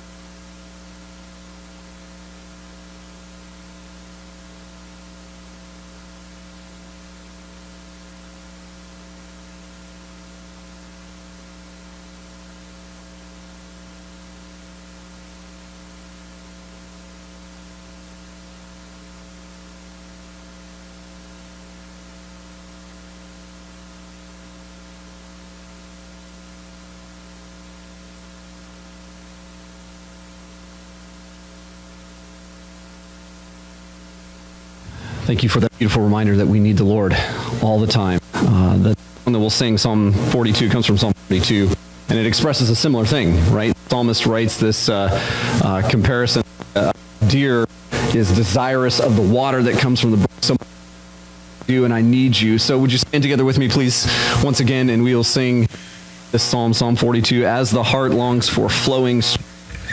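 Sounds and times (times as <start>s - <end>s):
electrical mains hum: 0.0s - 59.9s.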